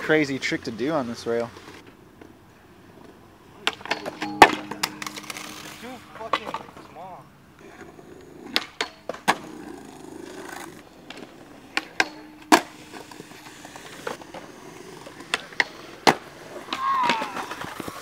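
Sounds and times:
skateboard wheels rolling on concrete: 0.0 - 18.0
skateboard grinding on rail: 3.6 - 7.0, 7.6 - 18.0
skateboard clacks: 7.7 - 18.0.

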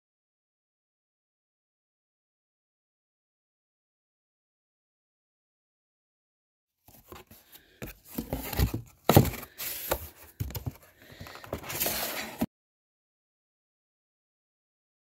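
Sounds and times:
cardboard rustling and scraping: 6.9 - 12.5.

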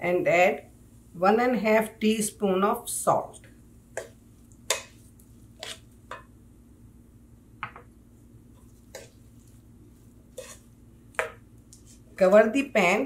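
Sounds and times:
wooden spoon scraping a pan: 4.7 - 6.0, 8.6 - 10.7.

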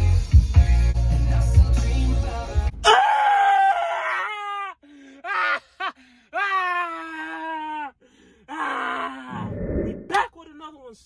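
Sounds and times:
man's drawn-out vocal cries: 2.8 - 9.3.

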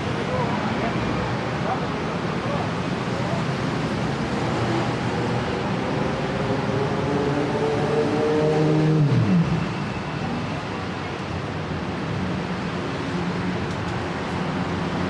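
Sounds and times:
steady road noise: 0.0 - 15.0.

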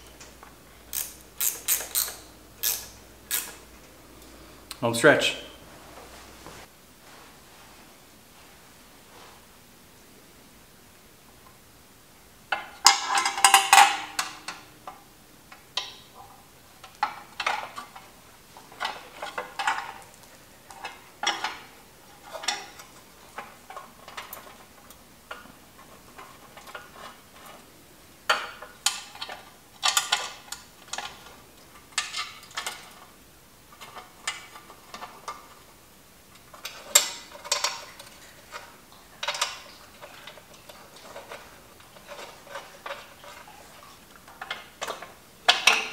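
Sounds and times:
metal clinking and rattling: 12.5 - 14.7, 15.8 - 27.7, 36.5 - 45.9.

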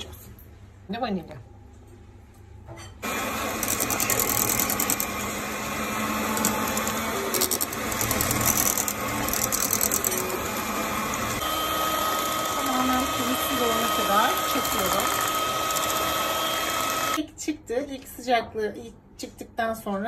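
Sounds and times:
electric hand mixer running: 3.0 - 17.2.

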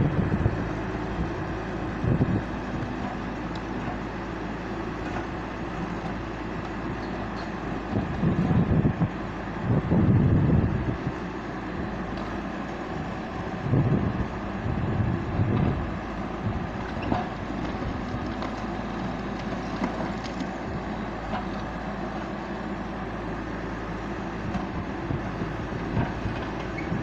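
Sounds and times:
excavator engine and hydraulics: 0.0 - 27.0.

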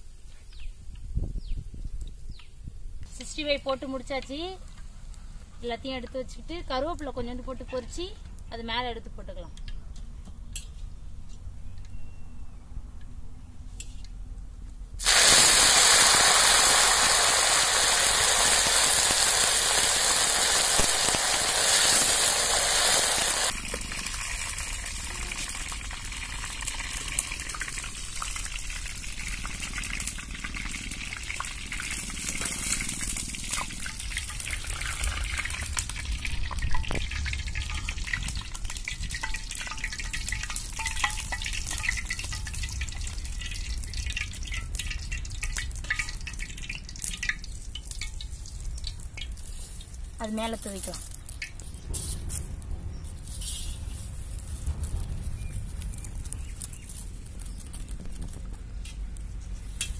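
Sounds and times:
leaves sizzling in hot oil: 15.0 - 59.0
oil crackling: 15.0 - 59.9.

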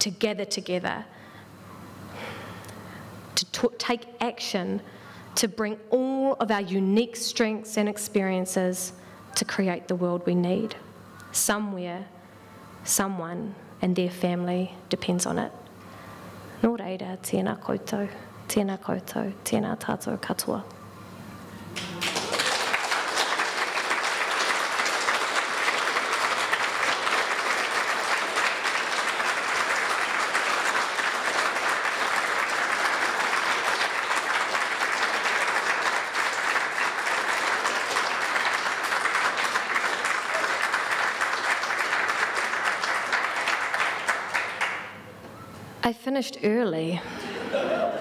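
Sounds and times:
audience applauding: 21.8 - 45.0.

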